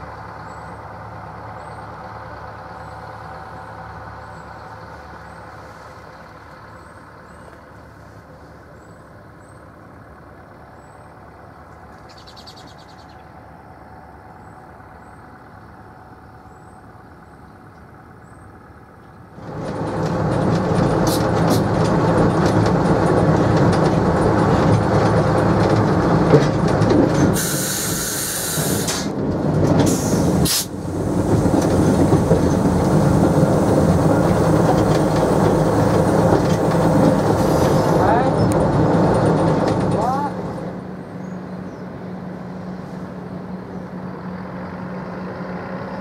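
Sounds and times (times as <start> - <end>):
diesel locomotive engine running: 0.0 - 46.0
faint bird chirps: 12.0 - 13.3
train wheels clicking over rail joints: 19.0 - 41.3
brief hiss: 27.4 - 29.1, 29.9 - 30.8.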